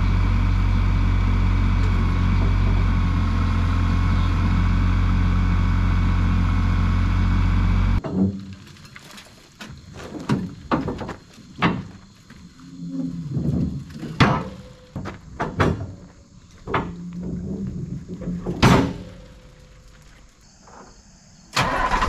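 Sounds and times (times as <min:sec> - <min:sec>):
knocks and clunks: 0:08.0 - 0:12.1, 0:13.1 - 0:19.6.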